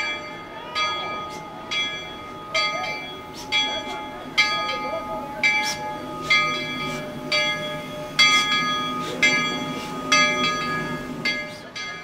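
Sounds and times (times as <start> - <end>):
locomotive bell ringing: 0.0 - 12.0.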